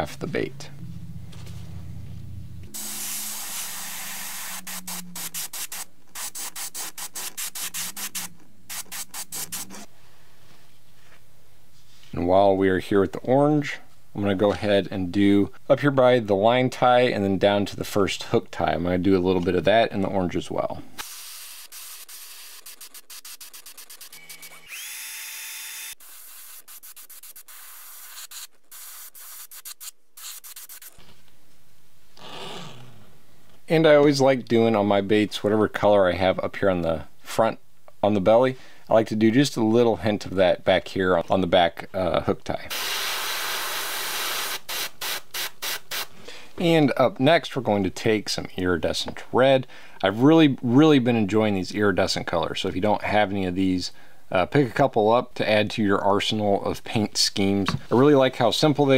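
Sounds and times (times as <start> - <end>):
airbrush spraying paint: 2.7 - 9.8, 21.1 - 24.5, 26.0 - 31.0.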